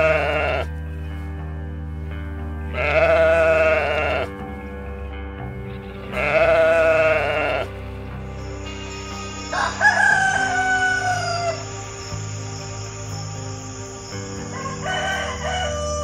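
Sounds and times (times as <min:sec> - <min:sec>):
sheep bleating: 0:00.0 - 0:00.7, 0:02.7 - 0:04.4, 0:05.7 - 0:11.6
background music: 0:00.0 - 0:16.0
rooster crowing: 0:09.4 - 0:12.0, 0:14.4 - 0:16.0.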